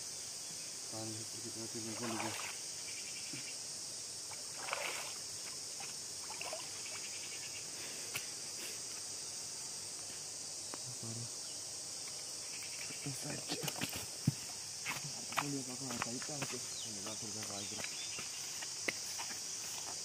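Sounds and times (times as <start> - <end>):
high-pitched insect chorus: 0.0 - 20.0
water splashing: 1.8 - 2.6, 4.3 - 7.2.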